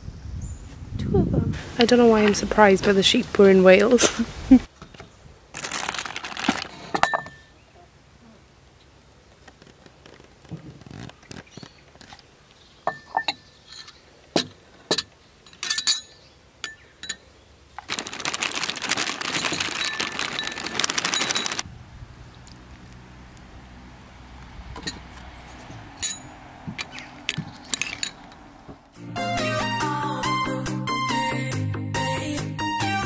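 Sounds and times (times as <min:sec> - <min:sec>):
dry cereal pouring into bowl: 0:17.9 - 0:21.6.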